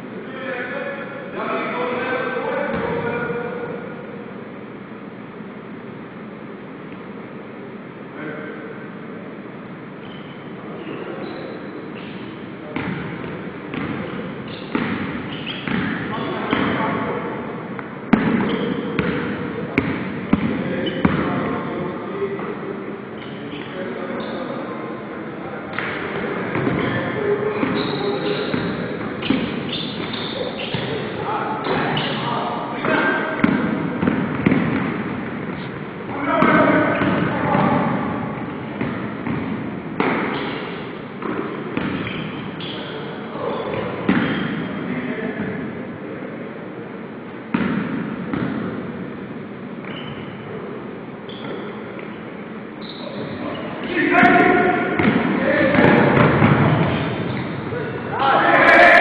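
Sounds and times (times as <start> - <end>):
sneakers squeaking: 9.9 - 25.0, 25.6 - 45.6, 47.5 - 59.0
basketball bouncing on wooden floor: 12.8 - 14.1, 14.7 - 16.8, 18.1 - 21.3, 33.4 - 35.7, 38.8 - 40.5, 41.2 - 42.2, 55.0 - 57.5.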